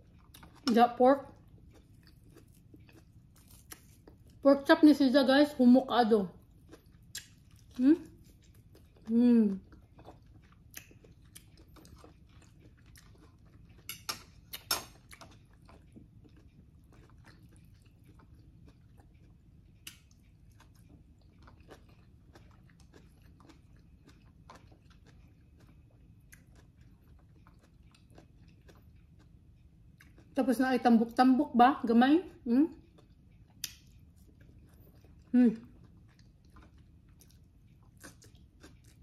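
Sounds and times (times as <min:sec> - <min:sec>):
person chewing food: 0:00.0 - 0:04.4, 0:06.4 - 0:30.4, 0:32.7 - 0:39.0.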